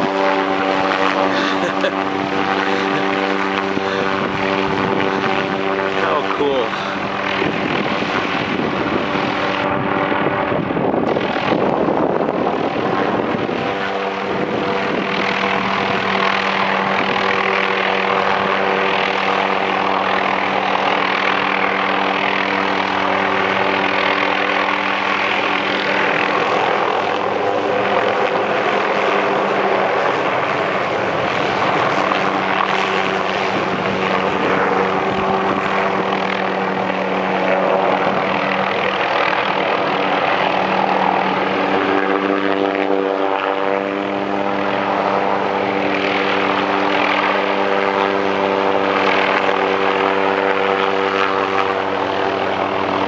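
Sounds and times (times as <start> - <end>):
steady hum: 0.0 - 20.3
helicopter rotor and engine drone: 0.0 - 53.0.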